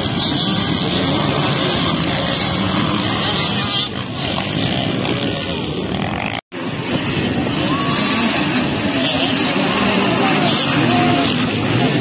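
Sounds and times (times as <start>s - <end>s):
dirt bike engines running: 0.0s - 12.0s.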